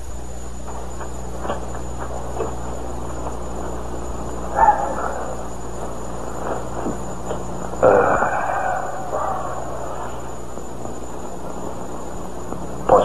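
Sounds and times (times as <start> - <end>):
faint footsteps and shuffling: 0.0 - 7.8
steady hiss and low hum: 0.0 - 13.0.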